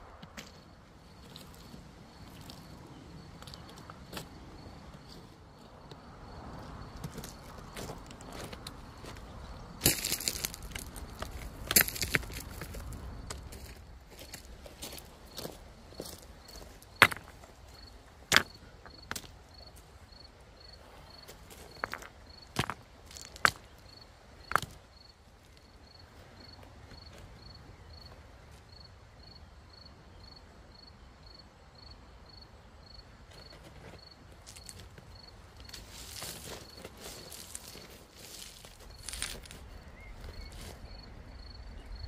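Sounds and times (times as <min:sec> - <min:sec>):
gravel crunching: 0:00.0 - 0:28.7, 0:32.9 - 0:42.0
faint insect chirping: 0:00.0 - 0:42.0
stones knocking together: 0:09.8 - 0:12.8, 0:17.0 - 0:17.3, 0:21.8 - 0:23.7, 0:38.7 - 0:39.6
rustling: 0:35.6 - 0:40.8.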